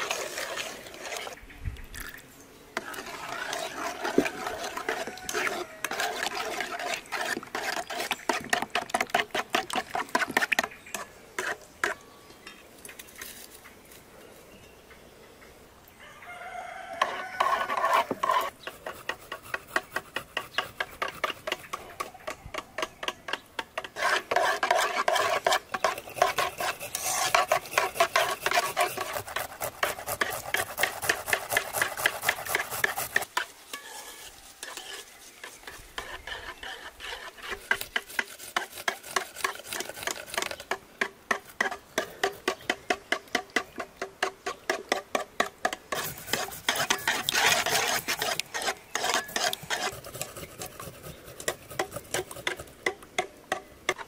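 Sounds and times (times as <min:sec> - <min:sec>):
whisking food in a bowl: 0:02.8 - 0:10.6, 0:23.9 - 0:40.7, 0:45.9 - 0:52.7.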